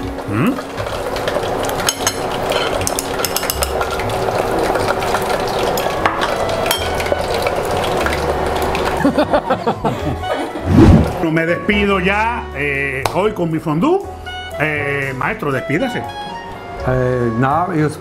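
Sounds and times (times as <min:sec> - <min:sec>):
hot oil sizzling: 0:00.0 - 0:10.3.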